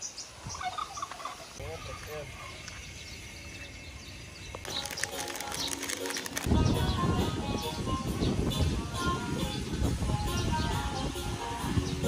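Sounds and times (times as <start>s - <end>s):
turkey gobbling: 0.6s - 2.6s.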